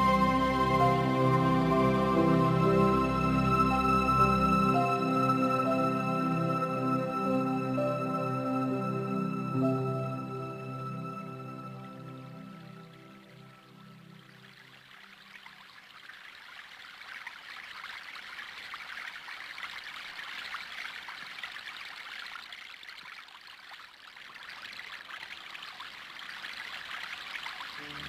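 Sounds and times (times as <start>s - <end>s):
water trickling: 8.9s - 28.0s.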